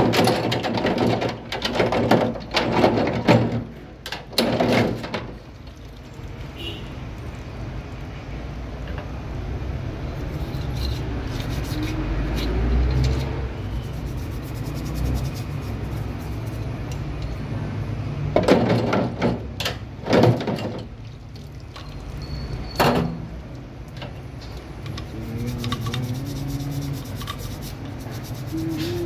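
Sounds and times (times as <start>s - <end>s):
toothbrush scrubbing metal: 10.2s - 16.8s, 24.8s - 29.0s.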